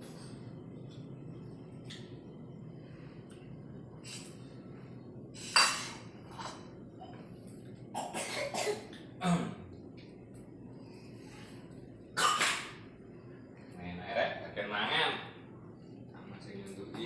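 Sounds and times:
person coughing: 7.9s - 9.6s.

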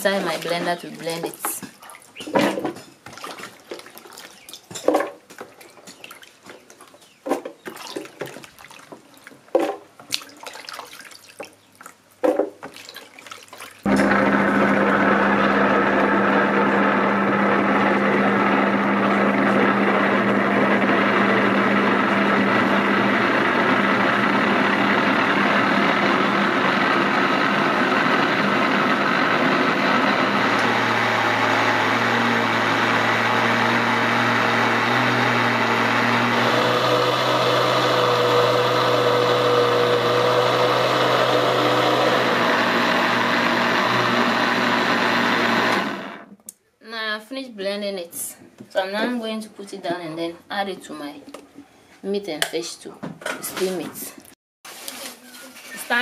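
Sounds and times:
knocks and splashes in blender jar: 0.2s - 11.6s
electric blender running: 13.9s - 46.3s.

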